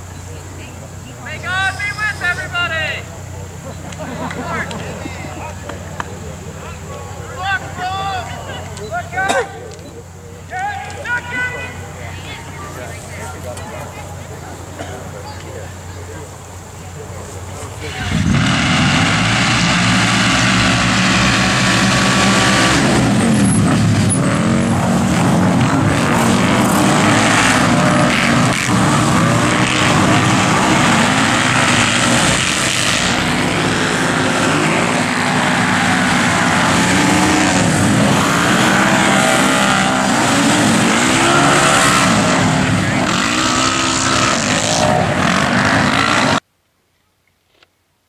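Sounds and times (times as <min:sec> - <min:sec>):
utility vehicle engines revving: 0:00.0 - 0:46.5.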